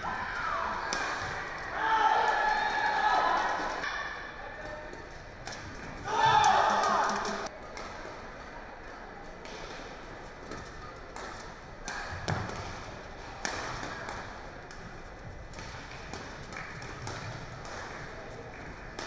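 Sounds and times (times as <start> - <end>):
low hall ambience: 0.0 - 19.0
rackets striking shuttlecock: 0.8 - 1.4, 10.5 - 19.0.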